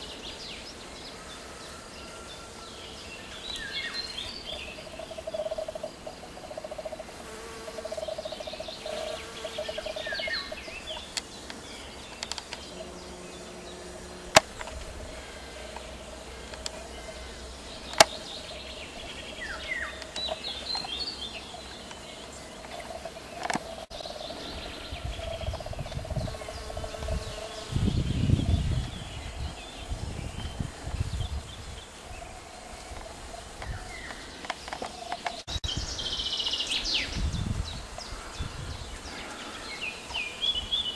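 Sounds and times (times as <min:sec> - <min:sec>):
honeybees buzzing: 0:00.0 - 0:40.9
small birds chirping: 0:00.0 - 0:40.9
sharp clicks: 0:17.9 - 0:18.2.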